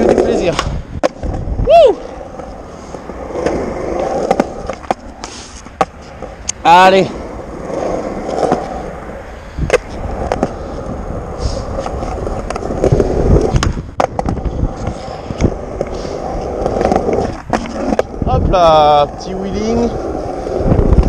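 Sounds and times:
skateboard wheels rolling: 0.0s - 21.0s.

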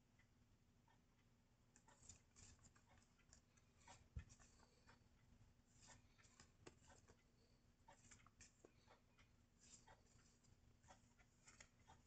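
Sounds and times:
paper cards rustling and clicking: 1.8s - 4.8s, 5.7s - 7.3s, 7.9s - 12.0s.

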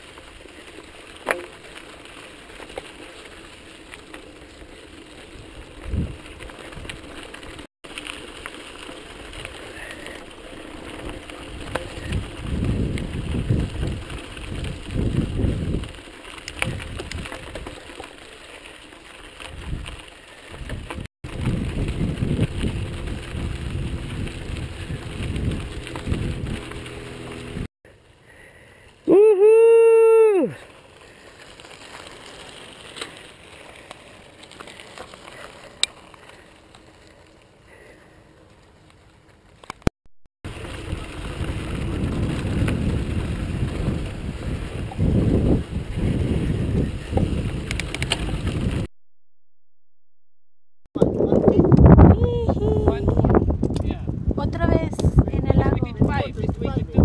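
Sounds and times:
bike rattling: 0.0s - 39.9s, 40.5s - 48.9s, 51.0s - 57.0s
bike tyres on gravel: 0.0s - 48.9s, 51.0s - 57.0s
wind buffeting microphone: 5.4s - 7.1s, 11.5s - 16.0s, 19.5s - 27.7s, 40.6s - 48.9s, 51.0s - 57.0s.

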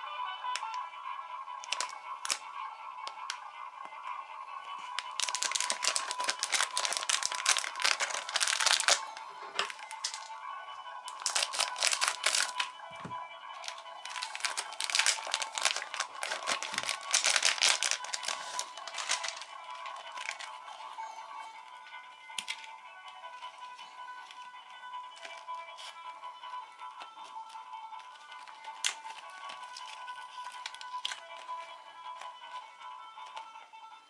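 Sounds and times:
plastic wrapper crinkling: 1.6s - 2.5s, 4.8s - 10.4s, 11.1s - 12.7s, 13.6s - 20.6s, 27.5s - 31.6s.

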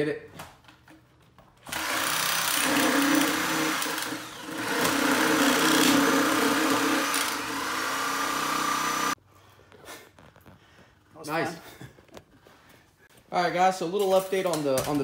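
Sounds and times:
reciprocating saw cutting wood: 1.7s - 9.2s.

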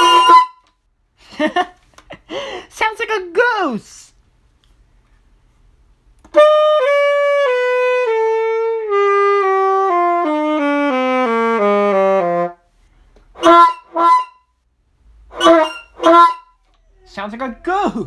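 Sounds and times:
saxophone descending scale: 0.0s - 0.6s, 6.4s - 12.6s
person speaking: 16.8s - 18.0s.

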